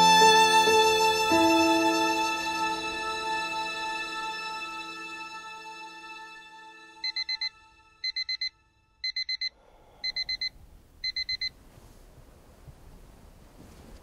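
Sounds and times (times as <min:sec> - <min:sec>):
alarm clock beeping: 0:07.0 - 0:11.5.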